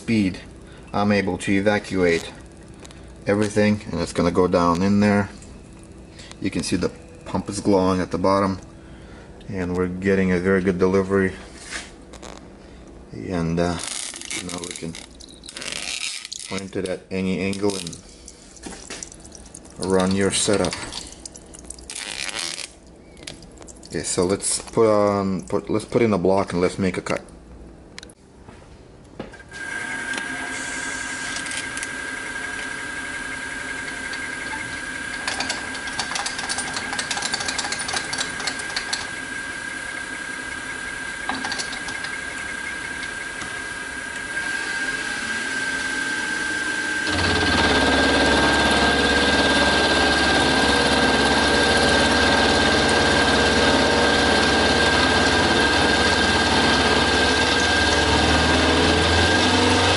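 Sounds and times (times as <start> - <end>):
milling machine whining: 0.0 - 9.4, 29.5 - 59.9
end mill cutting metal: 29.6 - 59.9.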